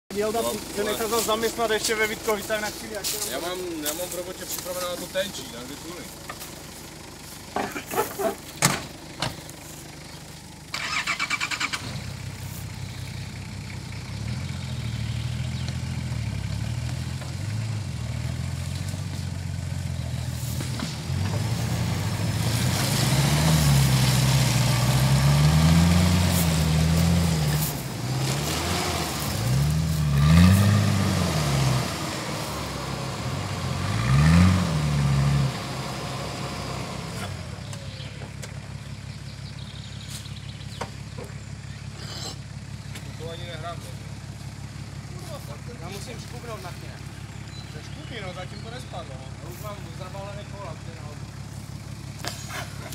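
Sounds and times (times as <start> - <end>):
engine starter cranking: 10.7 - 12.2
engine revving: 10.7 - 52.9.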